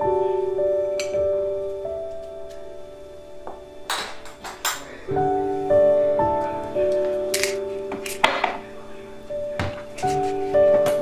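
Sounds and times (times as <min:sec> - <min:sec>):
instrumental music: 0:00.0 - 0:11.0
utensils knocking on table: 0:03.5 - 0:04.9, 0:07.3 - 0:08.6.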